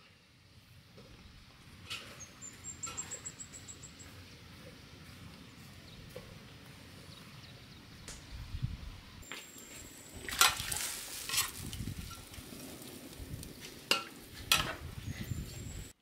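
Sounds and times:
broth simmering with sizzling hiss: 0.0s - 16.0s
ladle scraping a wok: 10.3s - 13.0s.

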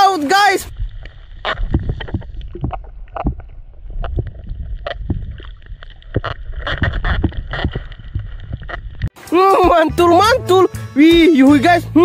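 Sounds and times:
underwater rumble of moving water: 0.6s - 9.1s
underwater clicks and pops: 0.8s - 9.1s.

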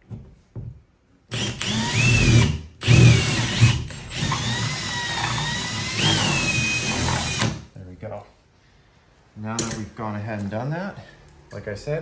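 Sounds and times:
cordless drill boring into drywall: 1.3s - 7.7s.

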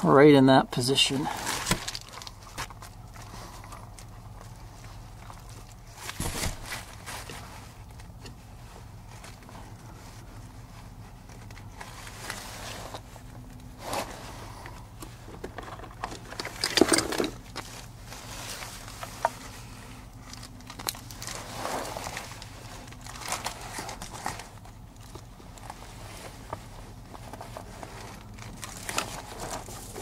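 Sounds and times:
handling rustles and knocks: 1.3s - 30.0s.

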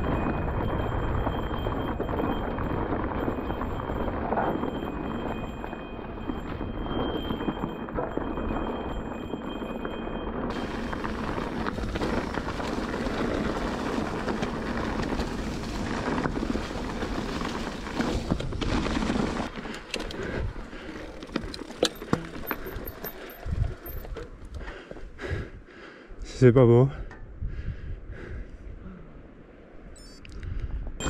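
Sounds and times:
tyres rumbling on rough ground: 0.0s - 25.4s
wind noise: 0.0s - 25.6s, 27.1s - 28.9s
bike clicking and knocking: 20.8s - 24.6s.

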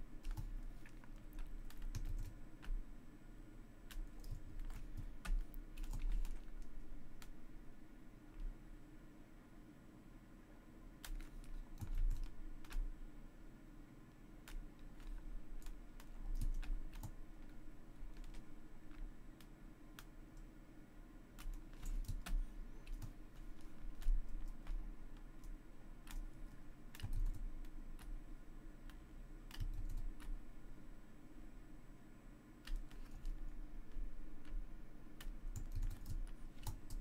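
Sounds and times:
faint low hum: 0.0s - 37.0s
keyboard and mouse clicks: 0.2s - 2.8s, 3.8s - 7.4s, 11.0s - 12.9s, 14.4s - 20.5s, 21.4s - 28.2s, 28.9s - 30.4s, 32.6s - 34.6s, 35.2s - 37.0s.

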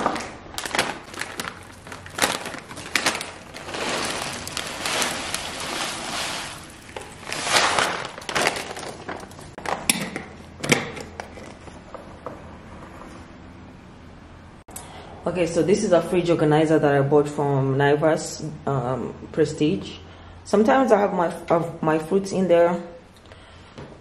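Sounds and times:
granola pouring into glass jar: 0.7s - 9.5s.

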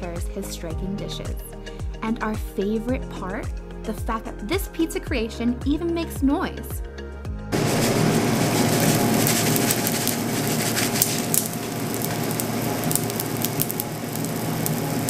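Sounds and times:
popping candy crackling: 7.9s - 15.0s.

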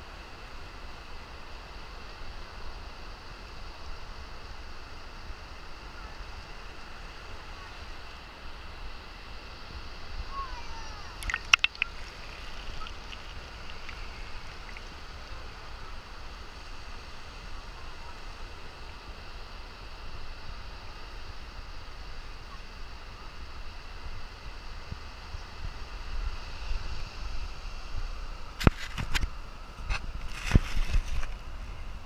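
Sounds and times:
wind rumble on microphone: 0.0s - 32.0s
ocean surf breaking: 11.1s - 16.8s
sharp clicks or knocks: 11.2s - 14.0s.

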